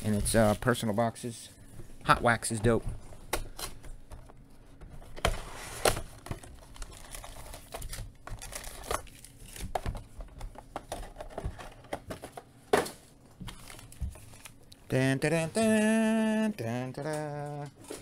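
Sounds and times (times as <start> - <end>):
foil wrappers crinkling: 6.4 - 9.7.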